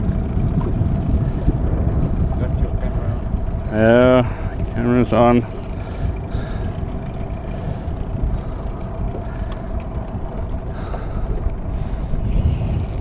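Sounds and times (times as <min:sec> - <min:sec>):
low mechanical hum: 0:00.0 - 0:13.0
wind rumbling on microphone: 0:00.0 - 0:13.0
faint clicks: 0:05.4 - 0:13.0.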